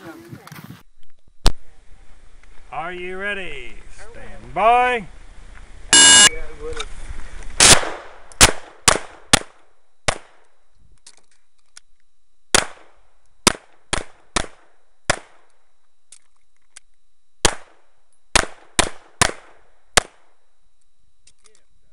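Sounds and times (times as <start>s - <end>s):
pistol shots: 7.6s - 10.5s, 12.5s - 15.5s, 17.4s - 20.3s.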